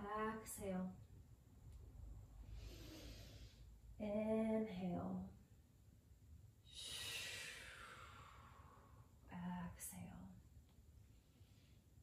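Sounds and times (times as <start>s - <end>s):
woman breathing: 2.3s - 4.0s, 6.6s - 9.2s.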